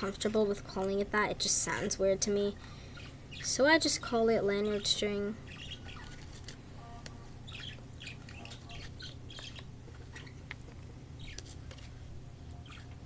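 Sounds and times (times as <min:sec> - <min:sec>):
plastic string squeaking and rustling: 0:05.5 - 0:06.6, 0:07.5 - 0:13.0.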